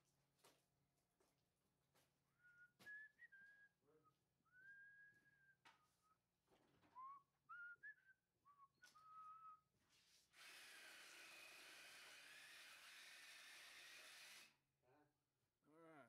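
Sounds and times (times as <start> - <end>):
person whistling a slow tune: 2.3 - 6.2, 6.9 - 9.7.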